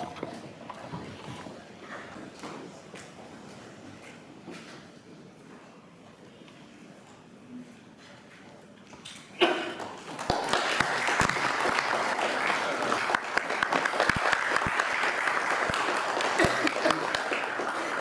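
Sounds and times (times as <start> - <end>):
audience applauding: 9.7 - 18.0.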